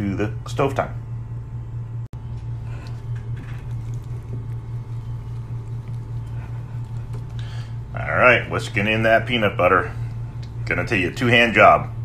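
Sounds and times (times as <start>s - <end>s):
steady low hum: 0.0s - 12.0s
whisk stirring thick batter: 3.3s - 7.7s.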